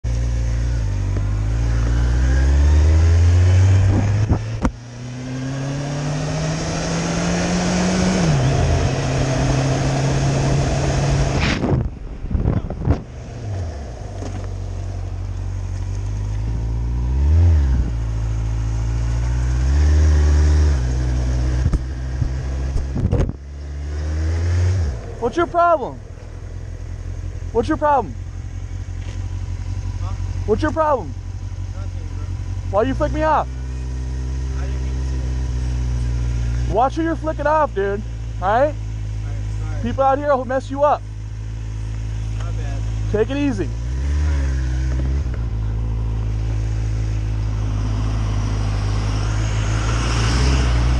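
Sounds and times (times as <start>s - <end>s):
motorcycle engine accelerating: 0.0s - 50.9s
wind rushing over microphone: 3.7s - 4.7s, 6.6s - 13.9s, 21.6s - 23.4s.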